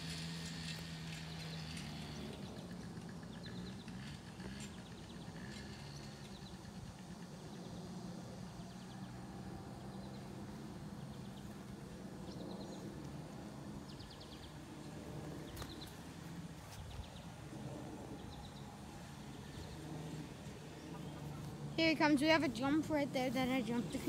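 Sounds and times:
distant atv engine hum: 0.0s - 24.0s.

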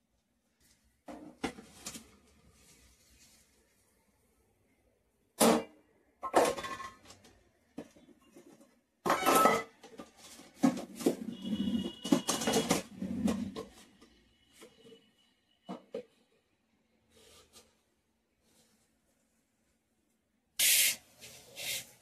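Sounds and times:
metal containers clinking and clattering: 5.4s - 13.8s.

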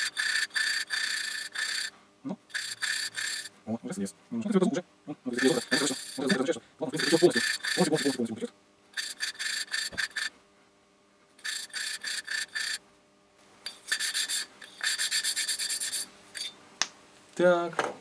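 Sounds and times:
valve scraping on seat: 0.0s - 1.9s, 2.5s - 3.5s, 5.3s - 8.3s, 9.0s - 10.3s, 11.4s - 12.8s, 13.7s - 16.6s.

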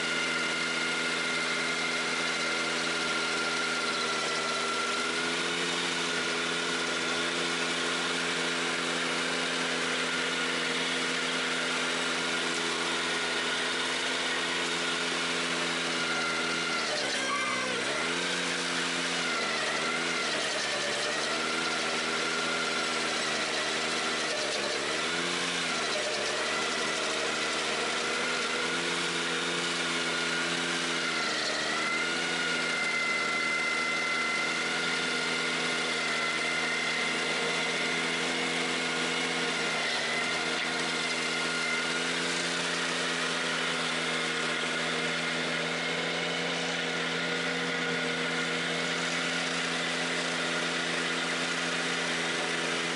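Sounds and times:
stump grinder cutting stump: 0.0s - 52.9s
tractor engine running hard: 0.0s - 52.9s.

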